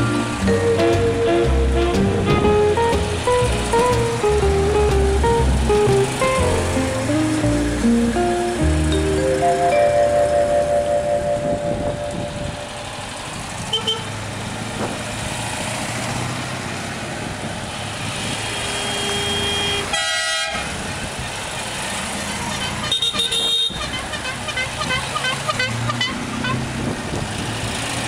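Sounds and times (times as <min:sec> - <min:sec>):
cars driving past: 0:00.0 - 0:28.0
car horn toots: 0:00.7 - 0:03.0, 0:13.7 - 0:14.2, 0:18.5 - 0:20.7, 0:22.5 - 0:26.6.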